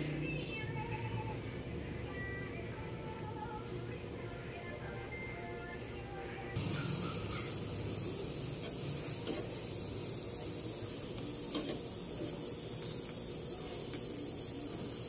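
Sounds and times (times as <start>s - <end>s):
gas burner flame hissing: 5.6s - 15.0s
eggplant skins sizzling: 6.6s - 15.0s.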